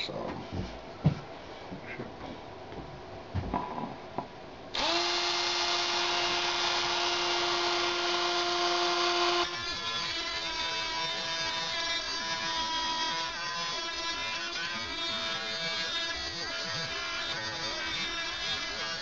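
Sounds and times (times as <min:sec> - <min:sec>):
rotary tool high whine: 0:04.7 - 0:19.0
cutoff wheel cutting steel sheet: 0:04.8 - 0:19.0.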